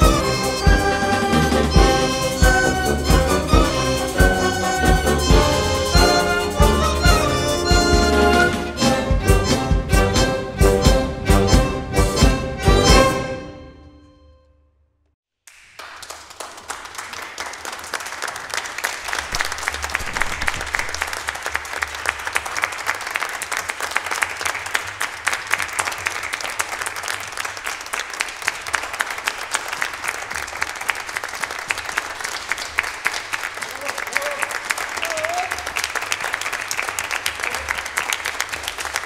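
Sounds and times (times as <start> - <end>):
audience applauding: 0.0 - 8.9, 15.5 - 39.0
orchestra chord: 0.0 - 14.4.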